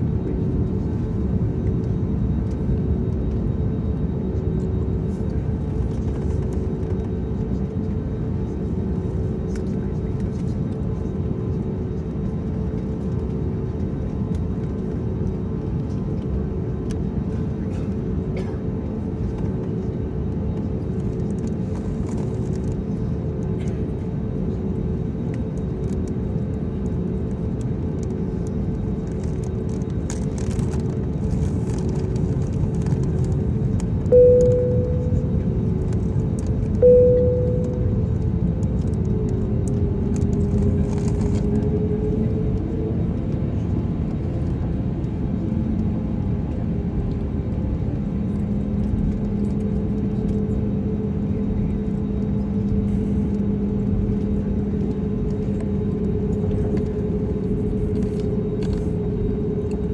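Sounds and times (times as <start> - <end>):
jet engines rumbling with whine: 0.0 - 59.9
short cabin chimes: 34.1 - 35.4, 36.8 - 38.1.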